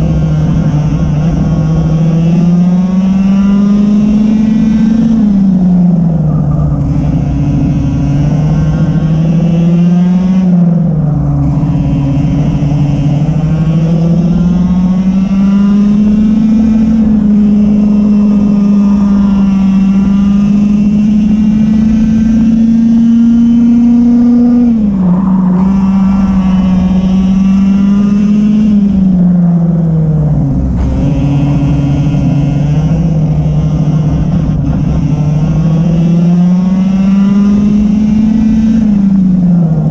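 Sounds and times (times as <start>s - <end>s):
kart engine at speed: 0.0s - 39.9s
rushing air noise: 4.5s - 29.5s.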